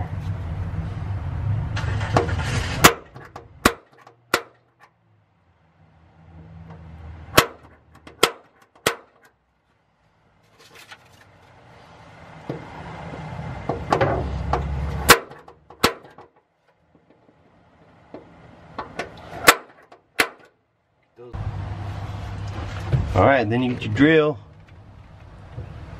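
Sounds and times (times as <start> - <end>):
center punch snapping on sheet metal: 2.8 - 4.7, 7.4 - 9.3, 15.1 - 16.3, 19.4 - 20.5
rustling and scraping: 7.7 - 20.1, 21.8 - 23.9.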